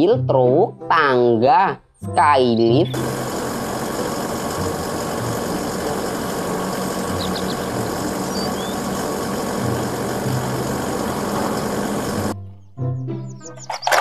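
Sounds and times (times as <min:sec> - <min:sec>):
excavator diesel engine running: 0:02.8 - 0:12.4, 0:13.5 - 0:14.0.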